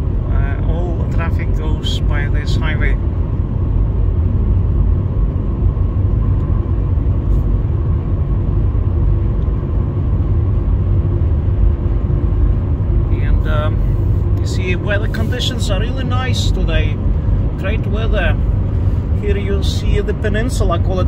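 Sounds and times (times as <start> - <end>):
car cabin road rumble: 0.0 - 21.0.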